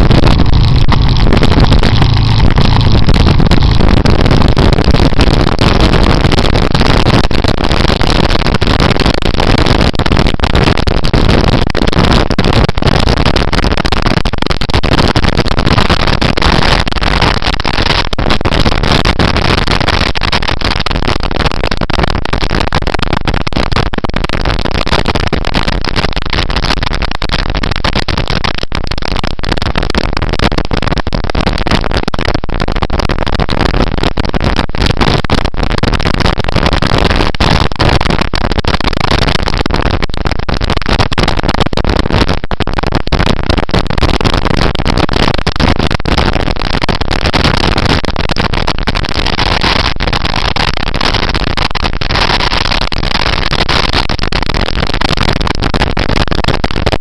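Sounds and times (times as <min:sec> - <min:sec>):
motorcycle engine running: 0:00.0 - 0:05.2
road noise: 0:00.0 - 0:06.0
wind buffeting microphone: 0:00.0 - 0:18.0
small crackles: 0:00.0 - 0:57.0.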